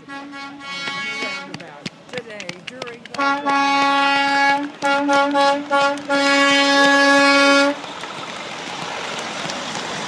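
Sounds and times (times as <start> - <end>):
truck horn blasts: 0.0 - 1.6, 3.2 - 7.8.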